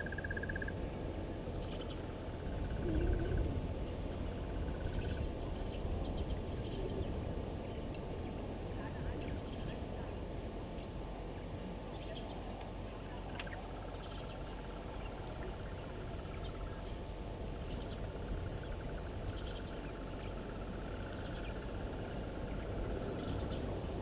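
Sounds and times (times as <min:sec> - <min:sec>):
faint bird chirps: 0:00.0 - 0:00.8, 0:01.6 - 0:07.9, 0:11.9 - 0:23.8
steady background hiss: 0:00.0 - 0:24.0.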